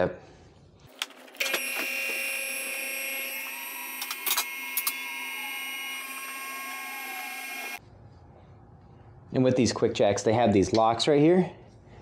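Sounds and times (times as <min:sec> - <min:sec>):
hydraulic pump whining: 0:01.0 - 0:07.8.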